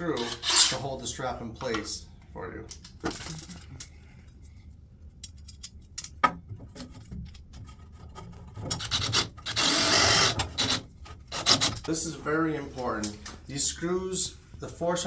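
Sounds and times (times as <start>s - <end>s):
cordless drill driving screw: 8.9s - 11.8s.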